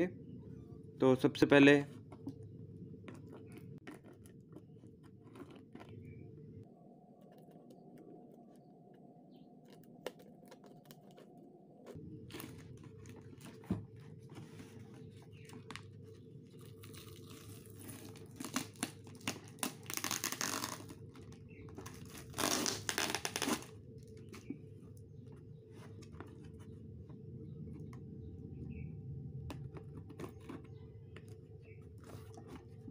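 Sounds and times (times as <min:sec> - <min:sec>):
plastic wrap crinkling: 0:16.5 - 0:24.4
packing tape tearing: 0:16.8 - 0:23.8.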